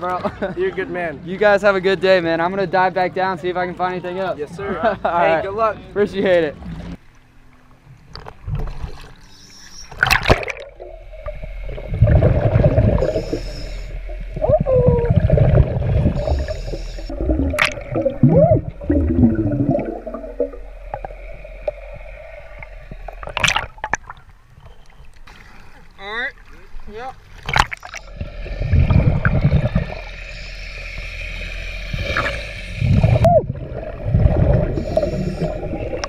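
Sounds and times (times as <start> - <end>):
underwater hum: 6.5 - 36.0
water splash: 9.9 - 24.4, 25.0 - 36.0
exhaled bubbles rumbling: 10.0 - 25.2, 27.4 - 36.0
regulator hissing: 10.8 - 23.4, 27.8 - 36.0.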